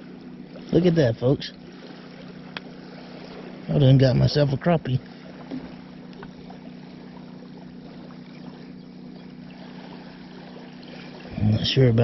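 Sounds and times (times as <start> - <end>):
steady low hum: 0.0 - 12.0
waves lapping shore: 0.0 - 12.0
faint handling clicks: 2.5 - 2.7.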